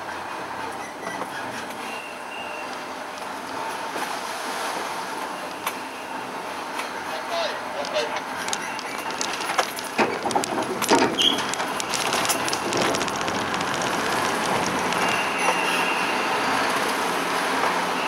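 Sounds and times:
truck rumble and rattle: 4.8 - 18.0
wheels clanking on steel ramp: 7.8 - 16.1.

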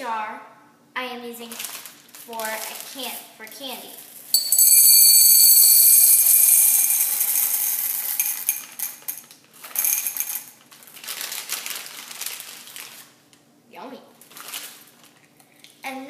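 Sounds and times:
hard candies pouring into glass jar: 4.4 - 13.0.

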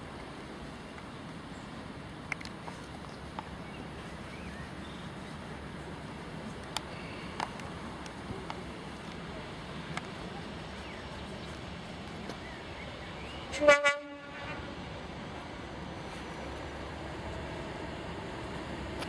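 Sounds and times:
outdoor background noise: 0.0 - 19.0
faint clicks: 6.0 - 10.2
locomotive horn blast: 13.5 - 14.7.

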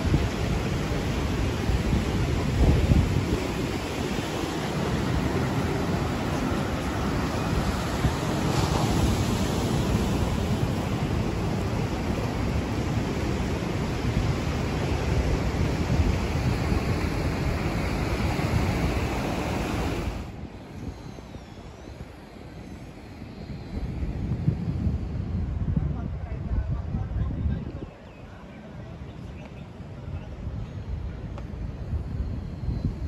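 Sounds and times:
surf breaking on beach: 0.0 - 20.3
wind buffeting microphone: 0.0 - 33.0.

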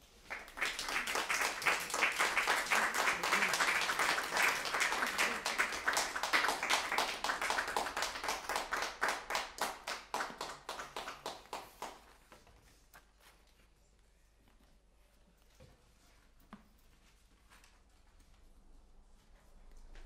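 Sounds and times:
audience applauding: 0.2 - 12.2.

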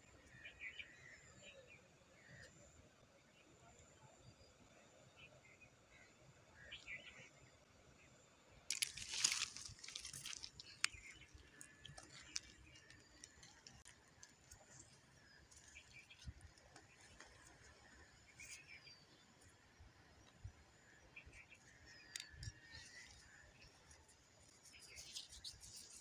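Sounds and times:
pebbles crunching in hand: 8.7 - 14.6
pebbles clicking: 8.7 - 15.7
faint small ticks: 8.7 - 17.8, 21.8 - 26.0.

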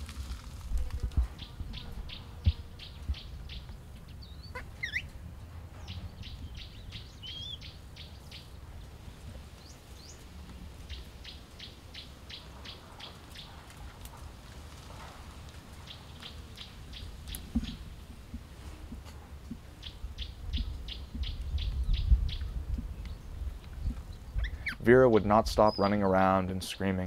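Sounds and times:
birds chirping rapidly: 1.3 - 5.1, 5.8 - 8.9, 10.9 - 13.6, 15.8 - 18.0, 19.6 - 27.0
steady low rumble: 15.3 - 24.7.

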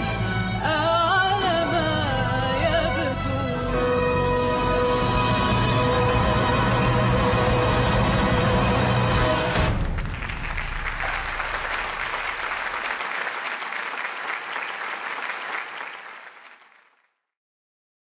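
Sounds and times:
audience applauding: 5.6 - 17.2.

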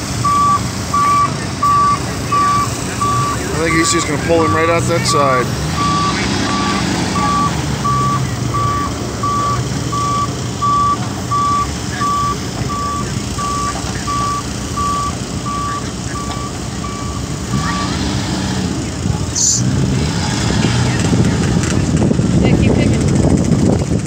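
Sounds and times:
excavator travel alarm beeping: 0.0 - 18.2
diesel engine under load: 0.0 - 24.0.

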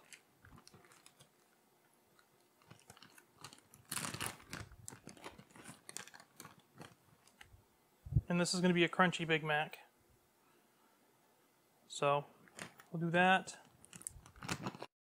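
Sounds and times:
plastic bag crinkling: 0.0 - 1.6, 2.4 - 7.5, 12.5 - 14.9.

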